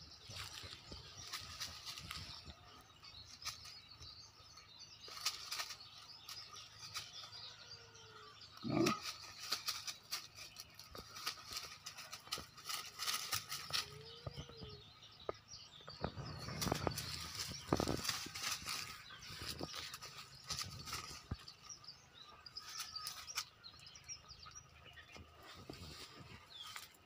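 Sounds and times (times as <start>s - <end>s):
dry leaves rustling and crackling: 0.0s - 4.0s, 5.0s - 7.5s, 8.6s - 14.8s, 16.0s - 21.8s, 22.5s - 23.5s, 25.4s - 27.0s.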